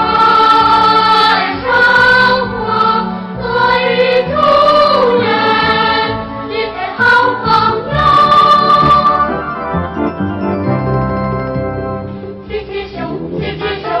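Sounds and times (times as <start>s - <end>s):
choir singing: 0.0s - 9.8s, 12.4s - 14.0s
instrumental backing music: 0.0s - 14.0s.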